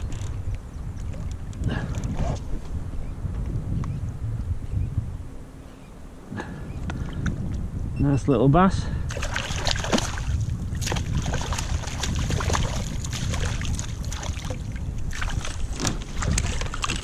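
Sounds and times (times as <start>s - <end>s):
wind rumbling on microphone: 0.0s - 17.0s
fish splashing at water surface: 9.1s - 15.6s.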